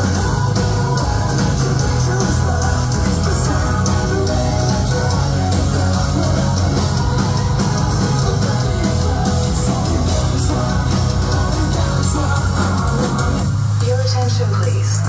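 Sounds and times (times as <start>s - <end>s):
live metal band playing: 0.0s - 15.0s
vocalists singing: 0.0s - 15.0s.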